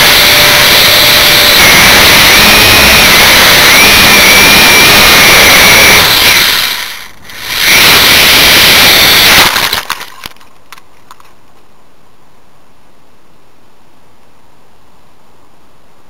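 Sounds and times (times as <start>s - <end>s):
drone propellers whining: 0.0s - 10.3s.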